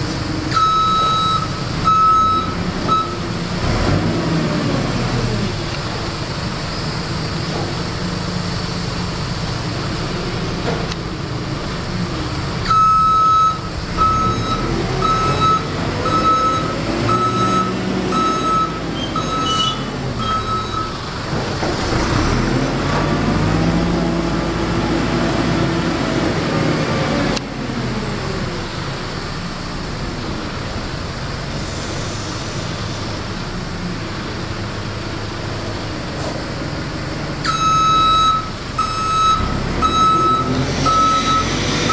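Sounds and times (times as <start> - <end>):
diesel engine running: 0.0 - 41.9
reversing alarm beeping: 0.5 - 3.2, 12.7 - 21.0, 37.5 - 41.9.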